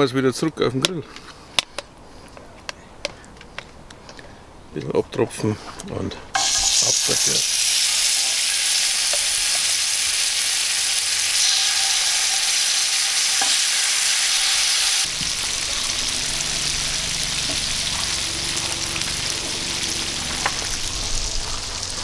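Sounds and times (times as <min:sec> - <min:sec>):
chicken wings sizzling on a grill: 0:06.4 - 0:22.0.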